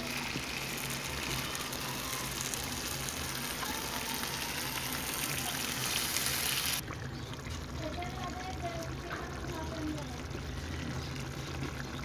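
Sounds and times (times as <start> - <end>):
gravy sizzling in a frying pan: 0.0 - 12.0.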